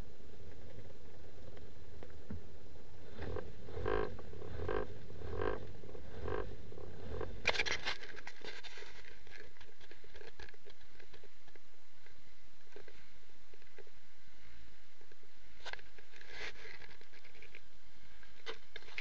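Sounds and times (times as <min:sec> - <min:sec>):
soft regular pulses: 0:00.0 - 0:18.8
camera handling clicks and scraping: 0:07.4 - 0:11.2.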